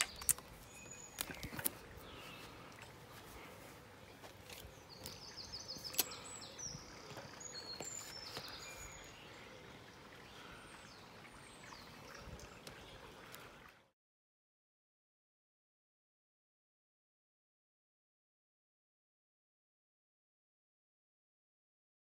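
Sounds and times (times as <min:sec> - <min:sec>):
small birds chirping: 0:00.0 - 0:13.8.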